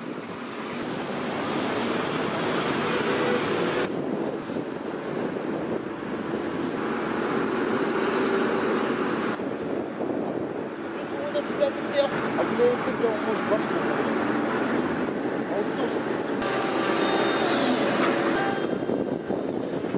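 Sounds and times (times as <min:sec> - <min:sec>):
diesel engine running: 0:16.0 - 0:19.9.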